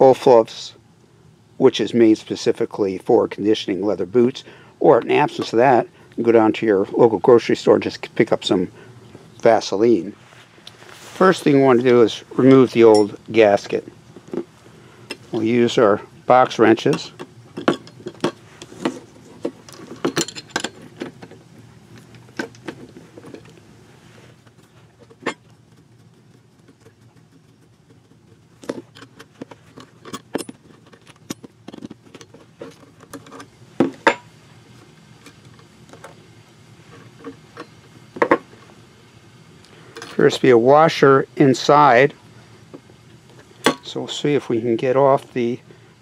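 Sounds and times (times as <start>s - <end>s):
metal wrenches clinking: 12.4s - 13.2s, 16.5s - 21.1s.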